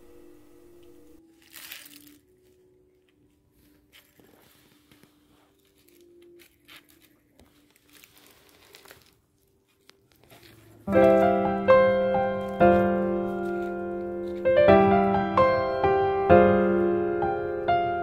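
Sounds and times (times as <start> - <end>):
piano music: 0.0 - 8.0, 10.2 - 18.0
faint clicks and rustles: 1.4 - 11.4.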